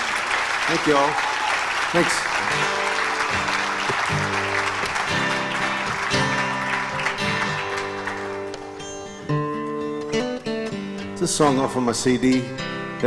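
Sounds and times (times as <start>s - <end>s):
audience applause: 0.0s - 9.2s
plucked string chords: 4.2s - 13.0s.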